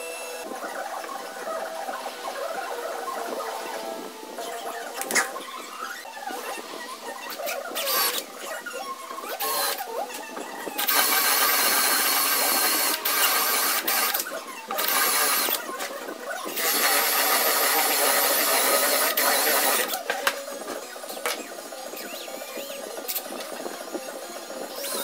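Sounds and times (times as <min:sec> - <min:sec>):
cordless drill boring wood: 0:09.3 - 0:09.8, 0:10.7 - 0:15.8, 0:16.4 - 0:20.0.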